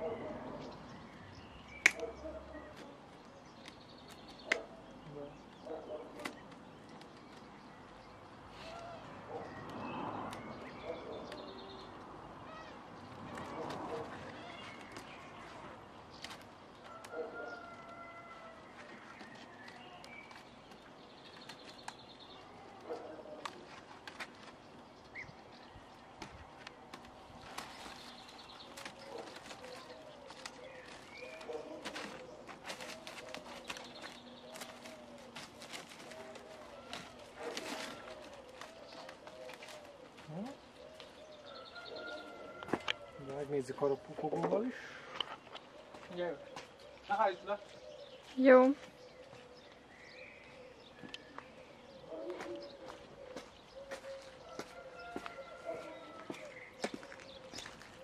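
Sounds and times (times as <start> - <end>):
birds singing and calling: 0.0 - 58.0
faint clicks and rustles: 26.2 - 41.3.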